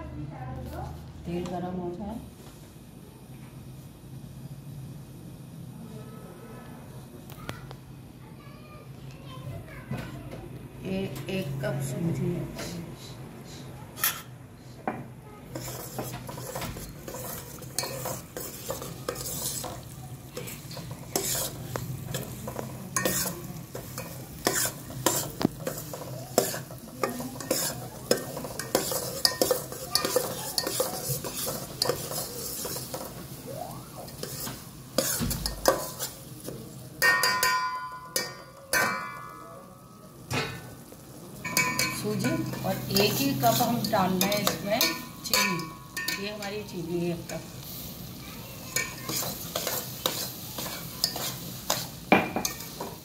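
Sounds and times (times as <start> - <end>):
soft sizzle: 0.0 - 53.0
spoon scraping pot: 15.5 - 33.4, 34.0 - 36.3, 41.4 - 46.6, 48.7 - 53.0
spoon clinking against pot: 15.6 - 33.2, 37.0 - 39.6, 41.4 - 46.5, 48.8 - 53.0.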